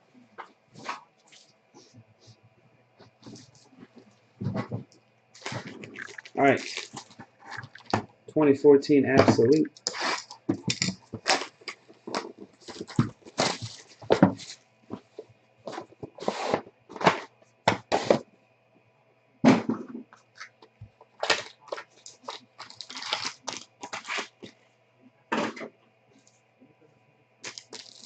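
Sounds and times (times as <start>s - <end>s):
plastic wrap crinkling and tearing: 5.4s - 8.0s, 9.8s - 14.6s, 21.2s - 24.5s, 27.4s - 28.0s.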